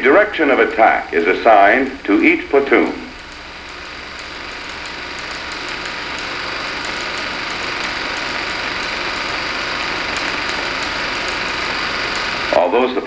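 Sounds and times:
film playback rushing noise: 0:00.0 - 0:13.0
faint crackle: 0:03.1 - 0:12.6.

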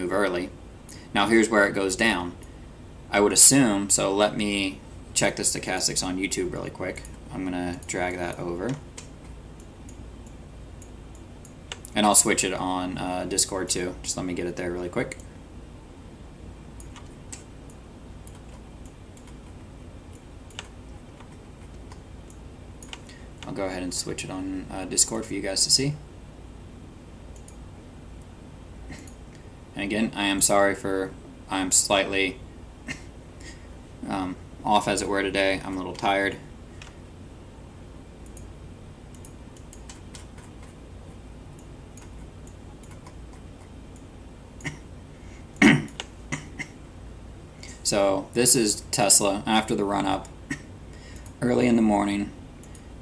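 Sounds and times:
steady low hum: 0:00.0 - 0:53.0
computer mouse clicks: 0:07.0 - 0:12.0, 0:16.8 - 0:23.6, 0:27.4 - 0:27.6, 0:38.2 - 0:38.5, 0:39.1 - 0:40.8, 0:41.5 - 0:44.8, 0:52.6 - 0:52.9
computer keyboard clicks: 0:18.2 - 0:19.6, 0:20.2 - 0:23.6, 0:39.2 - 0:40.8, 0:41.6 - 0:43.7
mouse and keyboard clicks: 0:42.0 - 0:43.7.

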